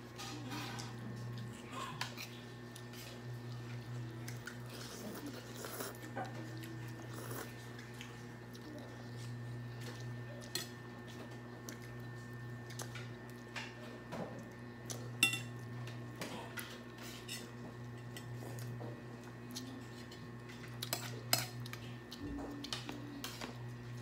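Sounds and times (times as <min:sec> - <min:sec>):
cutlery clinking against glass bowls: 0:15.2 - 0:15.6, 0:20.8 - 0:21.7.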